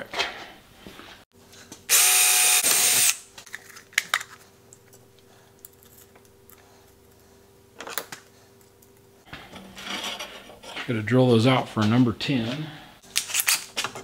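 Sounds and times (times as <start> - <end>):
cordless drill whining: 1.9 - 3.2.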